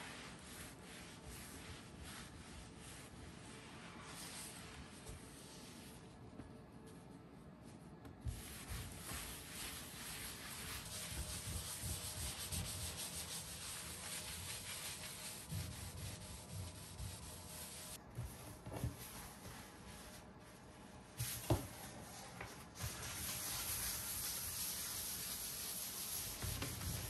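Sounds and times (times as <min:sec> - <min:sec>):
scrubbing or sanding rub: 0:08.3 - 0:18.0, 0:22.8 - 0:27.0.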